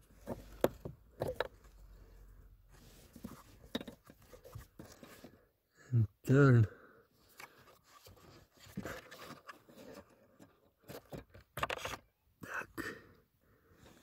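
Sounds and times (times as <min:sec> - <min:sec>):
hard plastic clicking and scraping: 0:00.0 - 0:01.8, 0:07.3 - 0:12.1.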